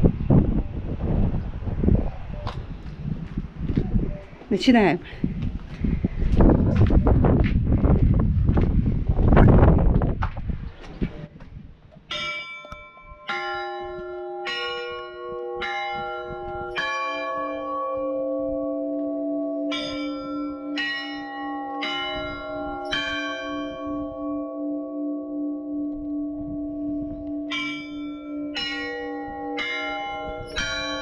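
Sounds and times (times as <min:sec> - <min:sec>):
wind gust on microphone: 0:00.0 - 0:12.4, 0:21.8 - 0:24.4, 0:26.0 - 0:31.0
church bells ringing: 0:12.1 - 0:31.0
deeper bell ringing: 0:12.1 - 0:31.0.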